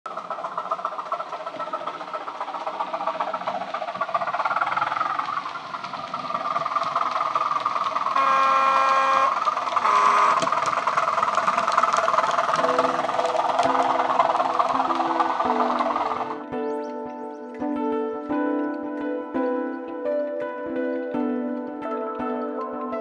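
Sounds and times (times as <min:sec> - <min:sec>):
diesel train engine running: 0:00.0 - 0:22.8
train horn: 0:08.0 - 0:11.4.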